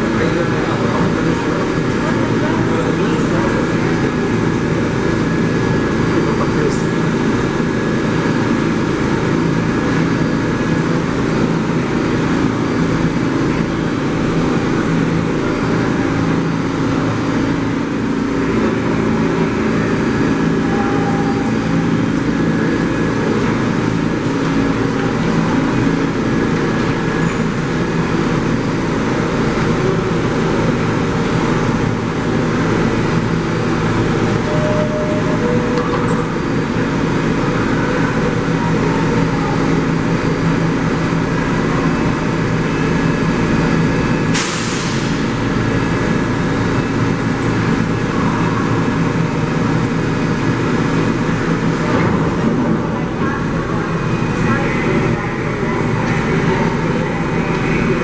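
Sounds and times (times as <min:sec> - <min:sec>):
subway car equipment humming: 0:00.0 - 0:58.0.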